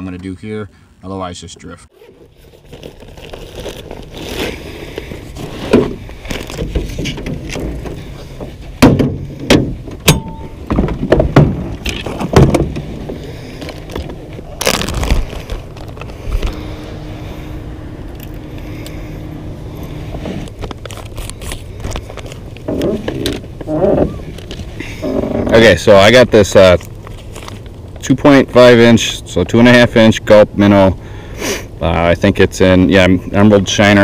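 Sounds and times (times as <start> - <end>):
gear clunking on metal boat: 6.6 - 13.2.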